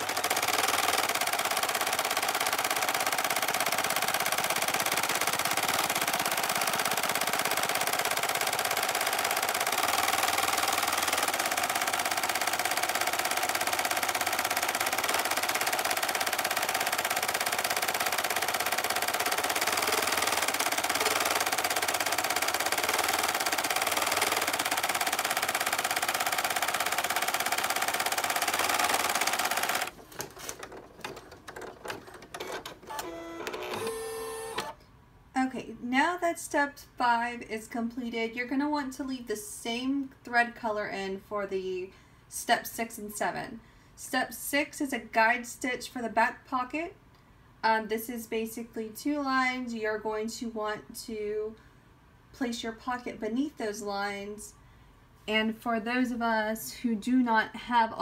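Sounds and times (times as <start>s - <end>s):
embroidery machine needle chatter: 0.0s - 30.0s
scattered clicks: 0.0s - 30.0s.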